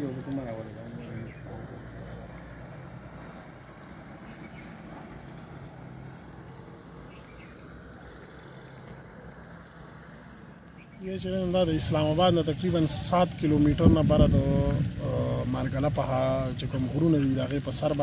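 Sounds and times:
insects chirping: 0:00.0 - 0:18.0
low steady rumble: 0:00.0 - 0:18.0.

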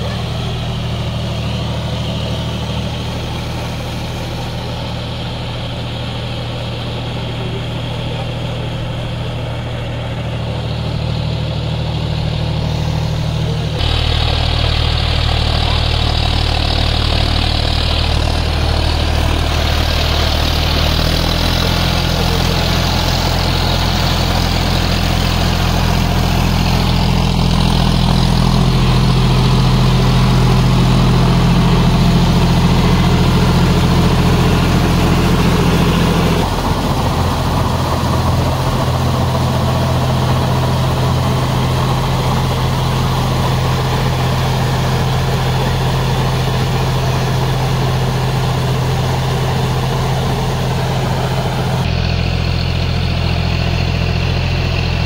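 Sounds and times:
tractor diesel engine running: 0:00.0 - 0:55.0.

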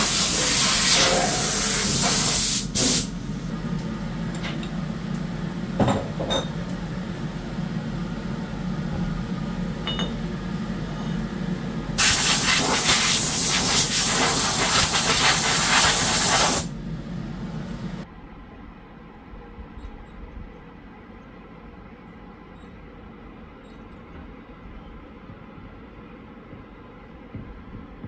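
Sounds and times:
air blow gun hissing: 0:00.0 - 0:03.1, 0:12.0 - 0:16.8
steady low hum: 0:03.1 - 0:28.0.

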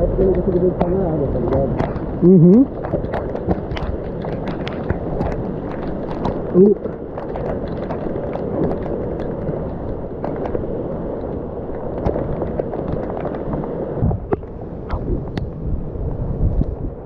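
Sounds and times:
heavy rain pouring: 0:00.0 - 0:17.0
raindrops tapping on camera: 0:00.0 - 0:17.0
low thumps: 0:14.0 - 0:17.0.

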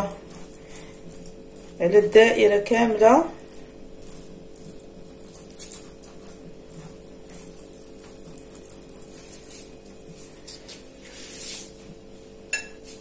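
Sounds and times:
steady low hum: 0:00.0 - 0:13.0
pastry brush swishing: 0:11.0 - 0:11.8.

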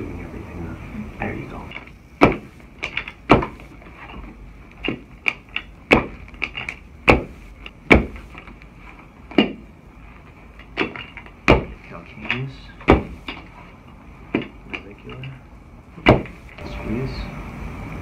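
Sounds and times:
sharp knocks and clacks: 0:01.7 - 0:08.6, 0:10.6 - 0:13.5.

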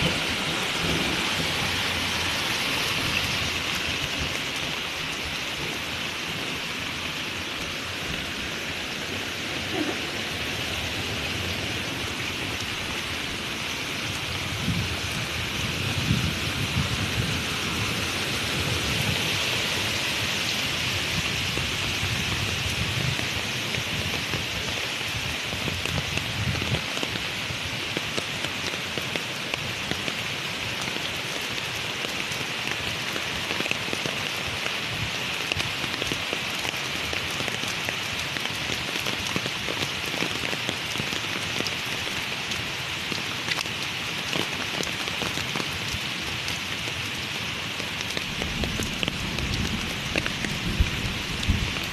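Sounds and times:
heavy rain on hard surfaces: 0:00.0 - 0:51.9.

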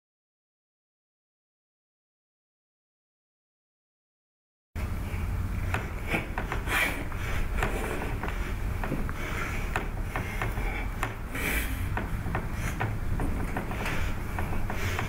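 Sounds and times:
low room hum: 0:04.8 - 0:15.0.

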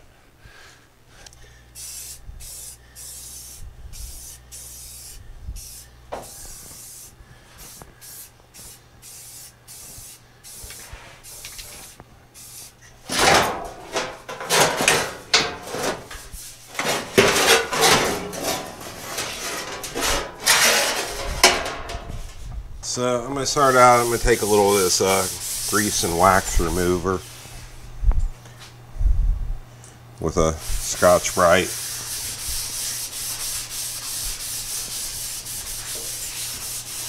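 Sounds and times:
spray-paint can hissing: 0:01.8 - 0:12.8
sheet steel rattling and scraping: 0:13.1 - 0:22.4.

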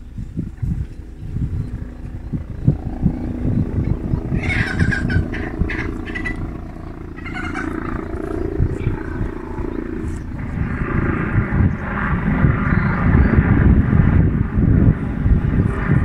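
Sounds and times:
wind rumble on microphone: 0:00.0 - 0:16.0
chickens calling: 0:02.4 - 0:10.3.

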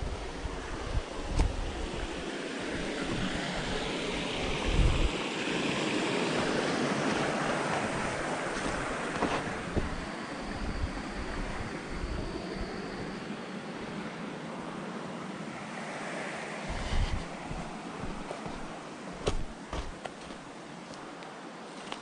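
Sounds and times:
wind buffeting microphone: 0:00.0 - 0:14.8, 0:16.5 - 0:20.6
wind gust: 0:00.0 - 0:20.5.

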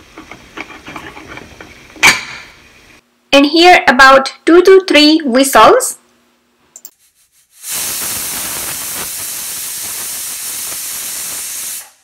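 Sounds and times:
pressure cooker whistle hissing: 0:07.6 - 0:12.0.

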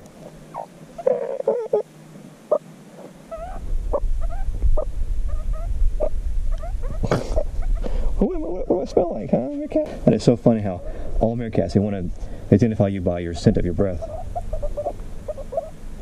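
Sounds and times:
meerkat chirping and squeaking: 0:00.5 - 0:01.9, 0:03.3 - 0:07.9, 0:13.3 - 0:15.8
low rumble on microphone: 0:03.3 - 0:16.0.

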